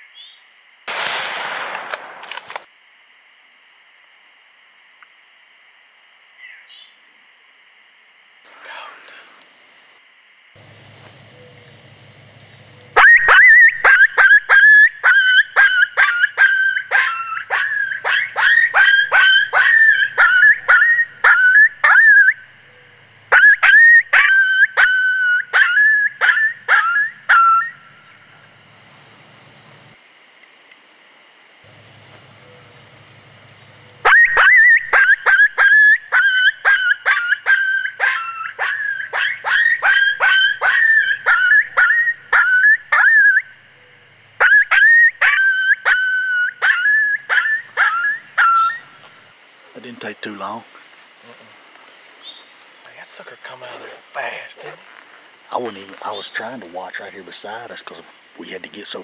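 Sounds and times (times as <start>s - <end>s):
yelping coyote distress calls: 12.8s - 28.2s, 33.9s - 49.1s.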